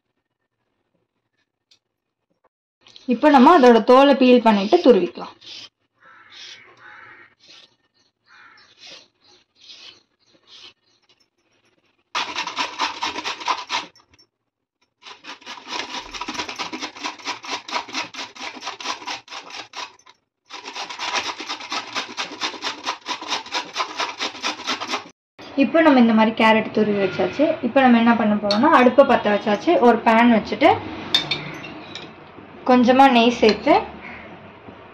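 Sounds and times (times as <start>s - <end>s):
peeler scraping carrot: 4.6s - 5.7s, 8.8s - 10.7s, 12.2s - 14.0s, 15.0s - 25.1s
carrot rasping on metal grater: 12.2s - 13.9s, 15.0s - 25.1s.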